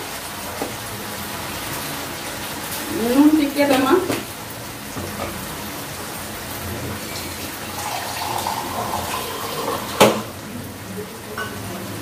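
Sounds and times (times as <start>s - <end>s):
water running into steel cup: 7.7s - 10.2s.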